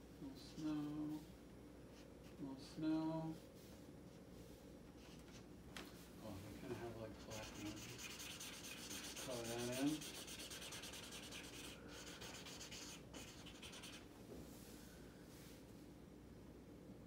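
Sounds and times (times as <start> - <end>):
marker scribbling on paper: 7.2 - 14.1.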